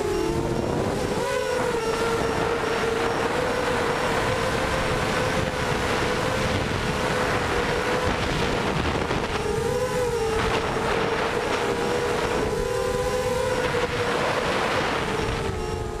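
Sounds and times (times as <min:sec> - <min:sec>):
quadcopter motors whining: 0:00.0 - 0:16.0
wind rush on microphone: 0:00.0 - 0:16.0.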